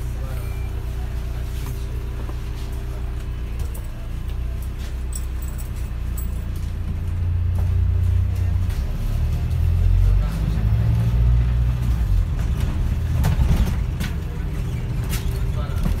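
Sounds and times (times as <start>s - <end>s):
bus engine idling: 0.0s - 16.0s.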